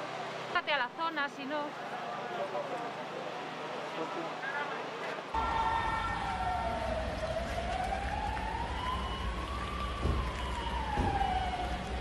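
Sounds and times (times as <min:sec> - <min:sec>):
siren wailing: 0:05.4 - 0:12.0.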